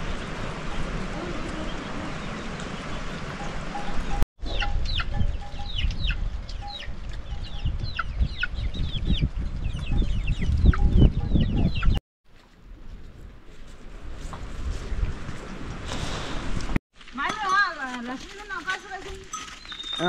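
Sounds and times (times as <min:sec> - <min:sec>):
chicks cheeping: 0:04.5 - 0:12.0.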